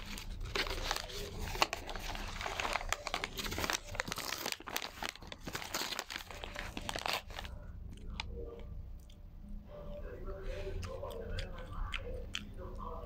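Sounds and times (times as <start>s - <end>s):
food wrapper crinkling and tearing: 0.0s - 8.3s.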